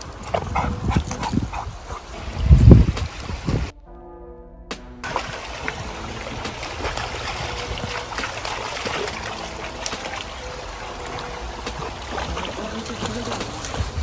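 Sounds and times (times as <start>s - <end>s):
stream babbling: 0.0s - 3.7s, 5.0s - 14.0s
dog splashing through water: 5.0s - 14.0s.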